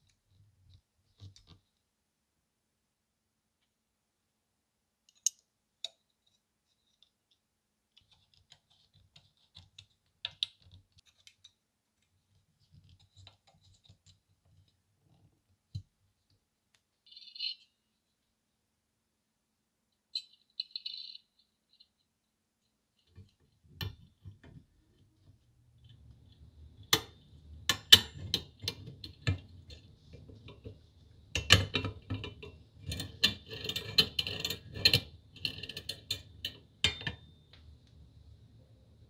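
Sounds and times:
metal parts clicking and clinking: 20.1 - 22.0.

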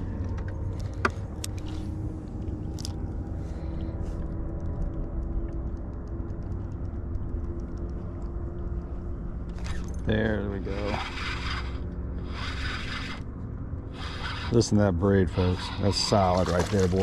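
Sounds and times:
faint hum: 0.0 - 17.0
fishing reel ticking: 10.6 - 13.2, 14.0 - 14.7.

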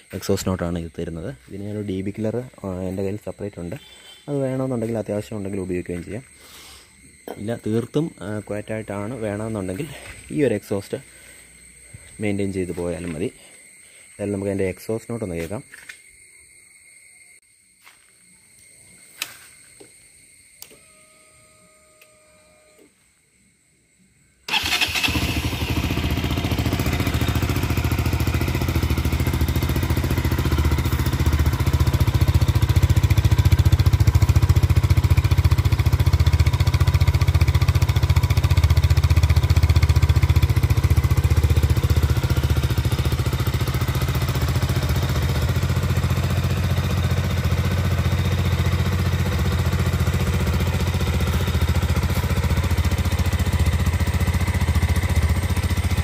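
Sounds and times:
motorcycle engine starting and idling: 24.5 - 56.0.

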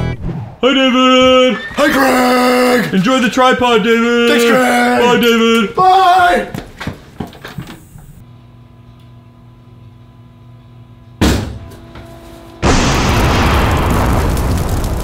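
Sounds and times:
explosion sound effect: 12.6 - 15.0
sudden bang: 12.6 - 15.0.

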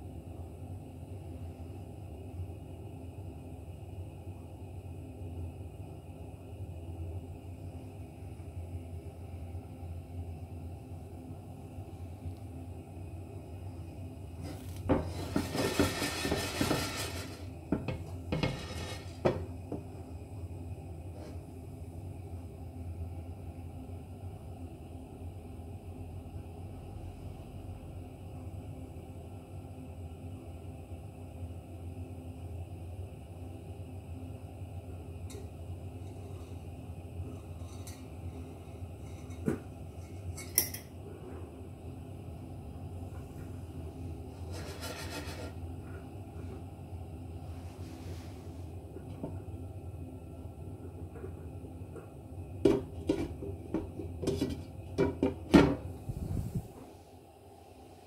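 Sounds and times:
low rumble of heating pan: 0.0 - 58.0
popcorn kernels rattling in pan: 15.0 - 19.4.

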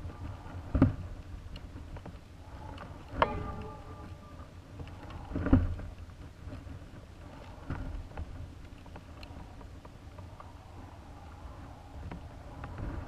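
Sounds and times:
low rumble: 2.4 - 5.3.

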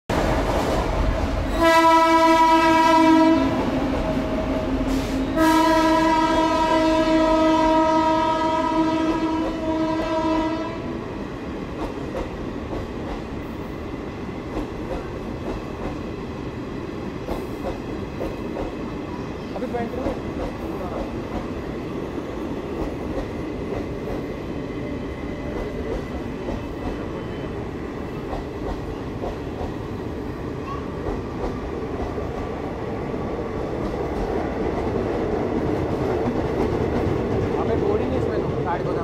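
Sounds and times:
train horn blasts: 1.4 - 3.7, 4.9 - 11.0
train wheels clattering on rails: 11.4 - 39.0.

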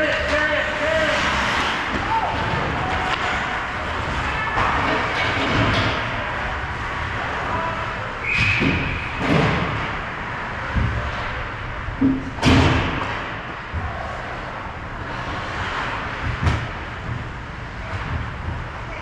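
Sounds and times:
steady rumble of rink: 0.0 - 19.0
sharp thuds against rink boards: 16.0 - 17.3.

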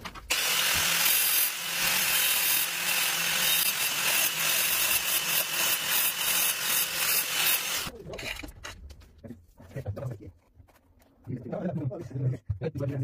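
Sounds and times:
angle grinder cutting tiles: 0.3 - 7.9.

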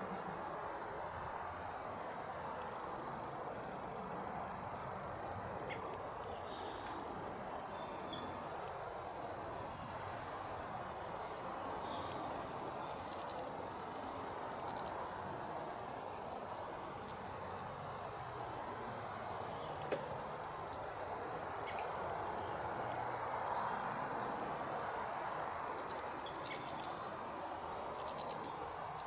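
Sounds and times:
outdoor background hiss: 0.0 - 29.0
cluster of clicks: 13.1 - 13.5.

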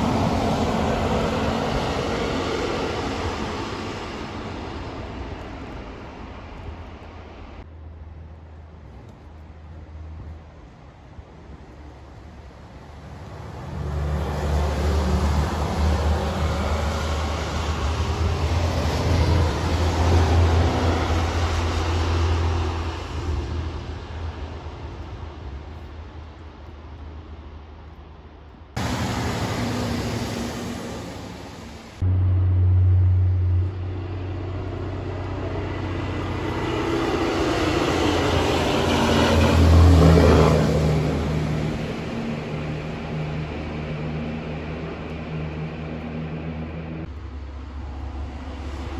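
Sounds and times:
truck engine drone: 0.0 - 10.7, 11.5 - 48.9
tyre and road noise: 0.0 - 48.9
truck diesel engine rumbling: 28.8 - 48.9.

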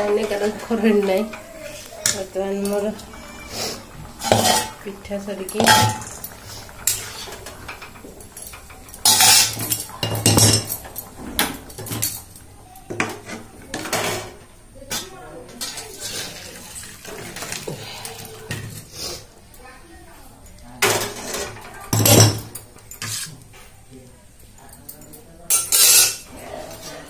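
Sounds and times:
metal spatula scraping a pan: 0.0 - 12.2, 15.6 - 19.2, 20.9 - 21.7, 22.9 - 23.4, 25.5 - 27.0.

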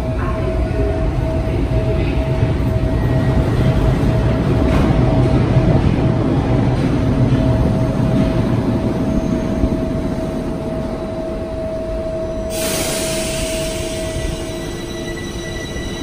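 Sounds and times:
train low rumble and hum: 0.0 - 16.0
loud hiss: 12.5 - 14.4.

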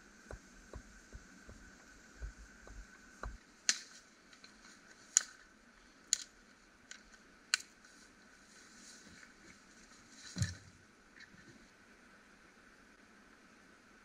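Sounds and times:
twigs snapping: 3.2 - 5.5, 6.1 - 7.8.

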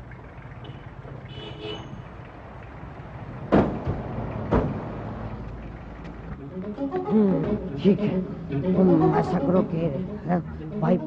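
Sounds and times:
low car rumble: 0.0 - 11.0
car doors slamming: 3.5 - 5.1.

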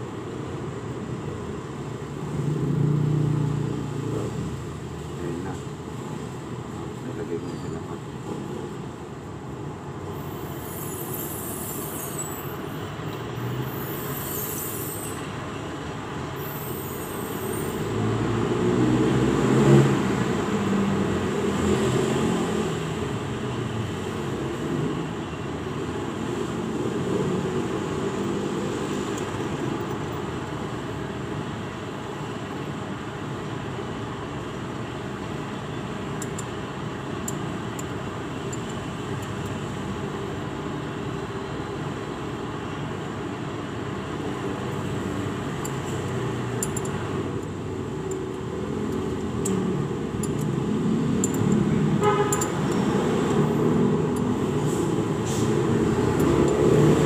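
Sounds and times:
road traffic noise: 0.0 - 57.0
short high hisses: 54.6 - 55.6.

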